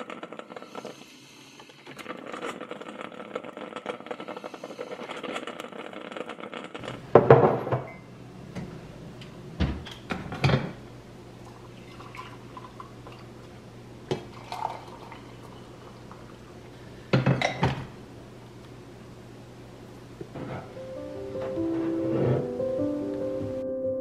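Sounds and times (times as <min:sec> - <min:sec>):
coffee maker gurgling and sputtering: 0:00.0 - 0:06.9, 0:11.4 - 0:13.3, 0:14.1 - 0:17.8
mugs clunking on countertop: 0:07.1 - 0:08.0, 0:17.1 - 0:17.9
coffee pouring into mug: 0:11.4 - 0:13.3, 0:14.1 - 0:16.6.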